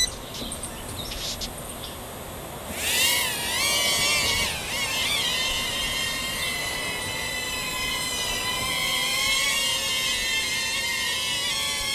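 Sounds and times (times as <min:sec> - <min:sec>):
toy drone propellers whining: 0:02.7 - 0:11.9.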